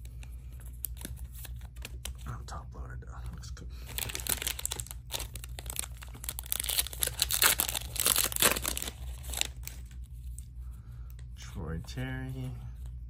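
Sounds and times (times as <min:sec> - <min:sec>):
foil wrapper crinkling and tearing: 0:03.8 - 0:10.0.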